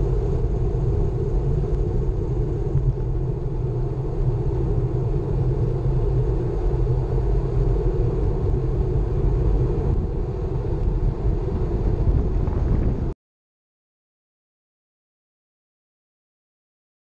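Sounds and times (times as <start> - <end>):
wind rumble on microphone: 0.0 - 13.2.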